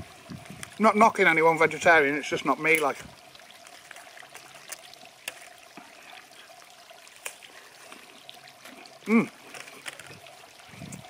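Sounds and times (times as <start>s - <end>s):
wind on microphone: 0.0s - 0.8s, 10.1s - 11.0s.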